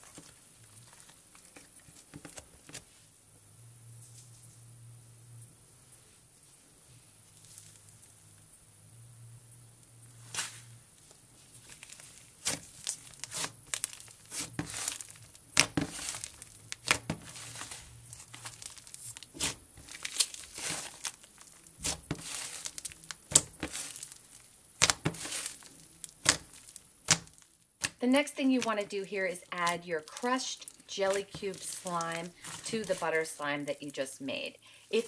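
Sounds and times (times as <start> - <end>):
slime crackling and popping: 11.6 - 34.1.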